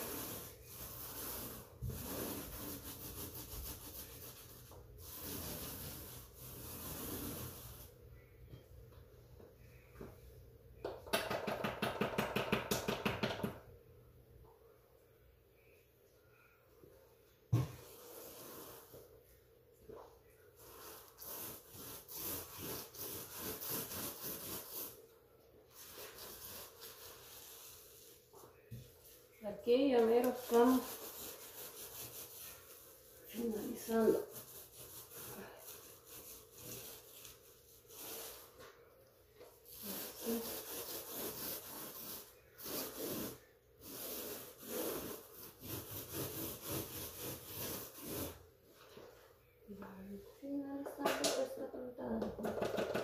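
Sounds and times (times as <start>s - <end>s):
scraping tool rasping on wall: 0.0s - 7.9s, 39.7s - 48.4s
paint roller rasping on wall: 0.0s - 8.0s, 20.6s - 25.1s, 25.7s - 38.7s, 39.6s - 48.4s.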